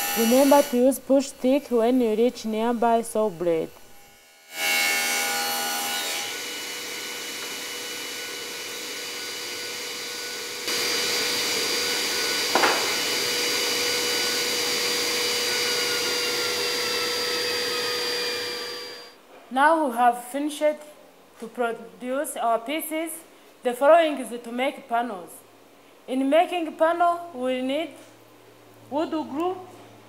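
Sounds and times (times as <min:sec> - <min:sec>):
panel saw blade whine: 0:00.0 - 0:19.2
dust extractor hiss: 0:10.6 - 0:19.1
short knock: 0:12.5 - 0:13.0.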